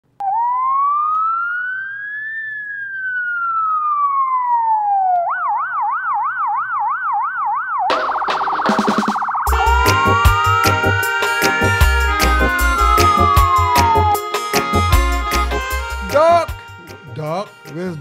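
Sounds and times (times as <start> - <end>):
electronic siren wailing and yelping: 0.2 - 16.5
harsh noisy sound: 7.9 - 11.7.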